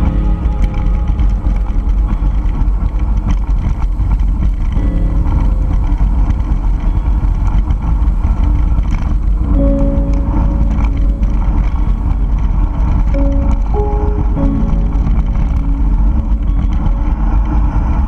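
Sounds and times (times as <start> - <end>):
bike clicks and rattles: 0.0 - 13.7
faint background music: 0.0 - 18.0
wind rumble on microphone: 0.0 - 18.0.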